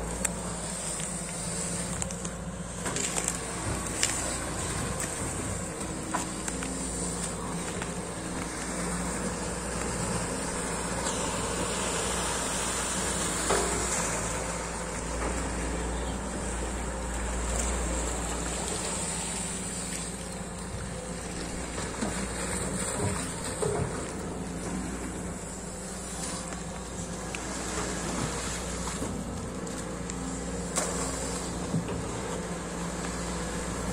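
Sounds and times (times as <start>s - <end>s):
excavator diesel engine running: 0.0s - 33.9s
excavator digging wet mud: 0.0s - 33.9s.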